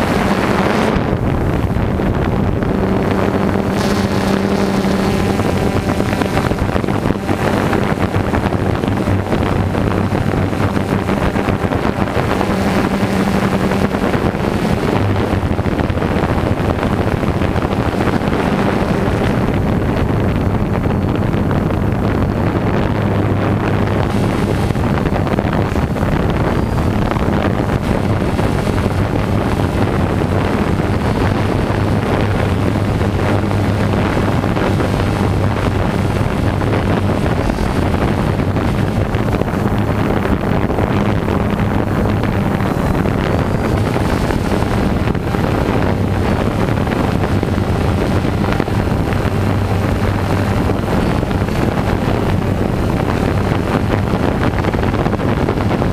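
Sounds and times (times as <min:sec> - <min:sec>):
drone propellers buzzing: 0:00.0 - 0:55.9
wind on microphone: 0:00.0 - 0:55.9.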